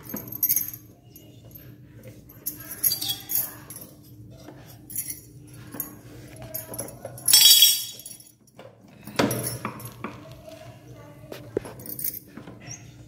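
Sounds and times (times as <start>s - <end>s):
steel ladle clinking and knocking: 7.3s - 8.2s.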